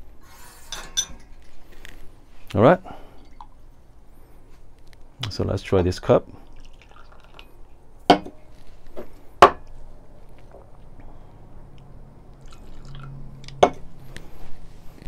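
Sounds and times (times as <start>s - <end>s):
coffee pouring into glass: 6.4s - 7.8s, 12.4s - 13.7s.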